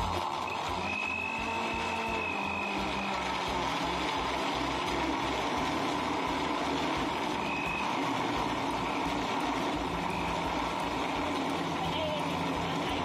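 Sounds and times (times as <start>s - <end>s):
blender churning ice: 0.0s - 13.0s
blender motor running: 0.0s - 13.0s.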